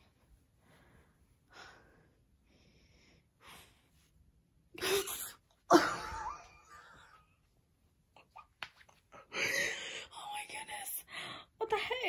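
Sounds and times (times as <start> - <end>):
woman breathing excitedly: 9.2 - 10.1.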